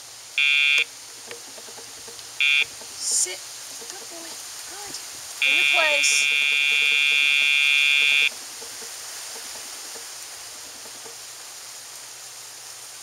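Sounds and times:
electronic buzz: 0.4 - 0.9, 2.4 - 2.7, 5.4 - 8.3.

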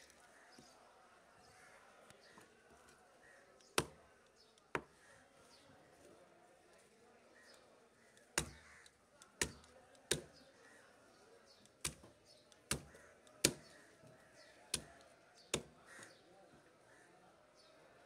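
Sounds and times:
knife chopping onto stone slab: 8.4 - 8.6, 9.4 - 10.3, 12.7 - 13.7.

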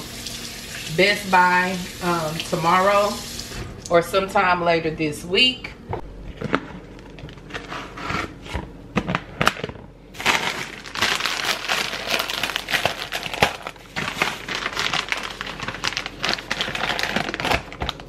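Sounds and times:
shopping bag crinkling: 9.3 - 18.0.

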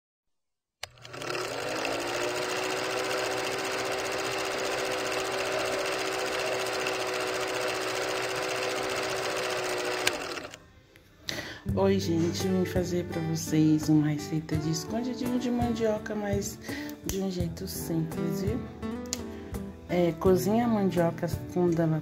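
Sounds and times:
film projector clattering: 0.8 - 10.6.

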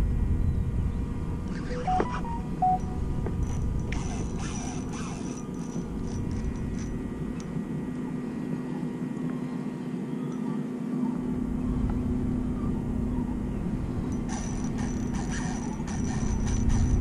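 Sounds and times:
distant engine drone: 0.0 - 17.0.

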